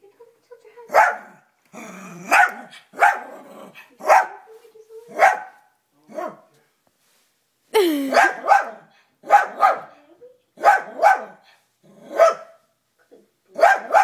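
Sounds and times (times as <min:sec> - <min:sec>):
dog barking: 0:00.9 - 0:01.5, 0:02.2 - 0:04.5, 0:05.1 - 0:06.5, 0:08.1 - 0:10.0, 0:10.6 - 0:12.7, 0:13.6 - 0:14.0.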